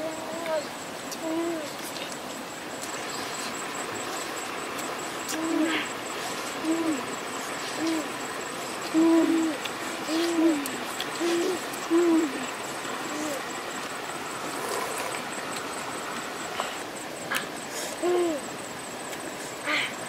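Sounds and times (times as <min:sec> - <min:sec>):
steady background hiss: 0:00.0 - 0:20.0
bird hooting: 0:03.0 - 0:16.8, 0:18.0 - 0:18.6.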